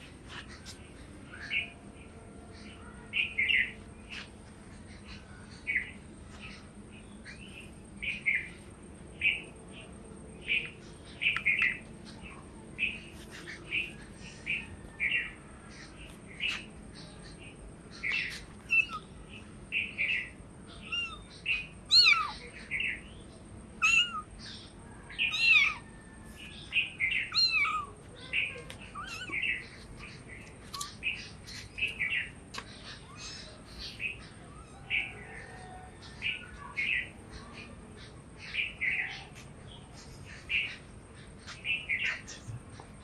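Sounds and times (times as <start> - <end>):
kitten mewing: 21.9 - 22.4, 23.8 - 24.3, 27.3 - 28.0, 28.7 - 29.4.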